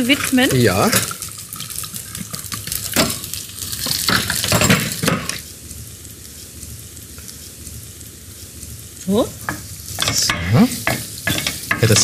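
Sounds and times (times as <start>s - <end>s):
vegetables sizzling in oil: 0.0s - 12.0s
cookware knocking and scraping: 3.8s - 5.4s, 9.4s - 12.0s.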